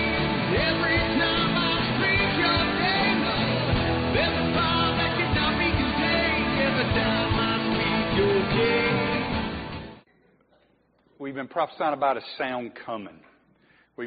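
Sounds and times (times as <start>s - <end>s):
song with singing and band: 0.0s - 10.0s.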